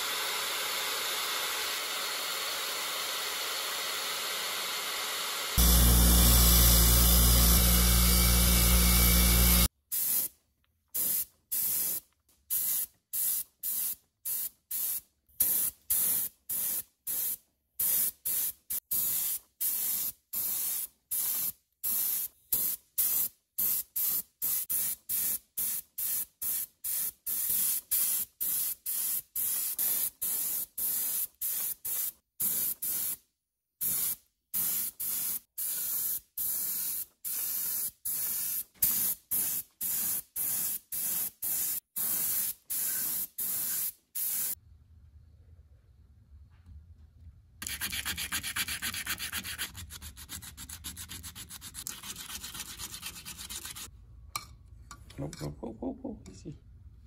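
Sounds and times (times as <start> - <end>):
bench grinder wire wheel humming: 0.0 - 9.7
paint spray gun hissing bursts: 0.0 - 10.3, 11.0 - 12.0, 33.8 - 44.6.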